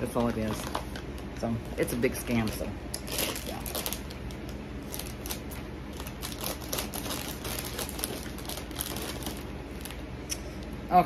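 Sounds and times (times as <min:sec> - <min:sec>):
low steady hum: 0:00.0 - 0:11.0
snack packaging crinkling: 0:02.2 - 0:10.0.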